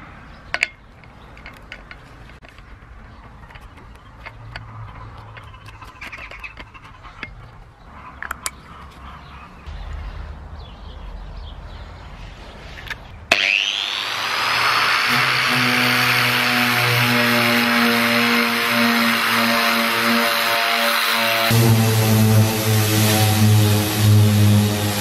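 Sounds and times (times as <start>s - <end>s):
clicks and rustling: 0.6s - 9.0s
angle grinder motor whine: 13.3s - 25.0s.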